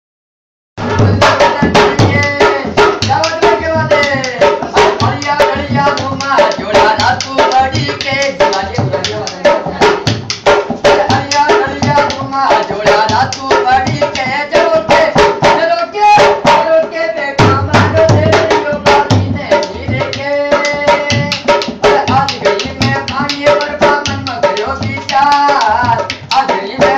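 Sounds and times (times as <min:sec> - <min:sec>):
person singing folk melody: 0:00.8 - 0:10.1, 0:10.8 - 0:26.9
hand drum rhythm: 0:00.8 - 0:26.9.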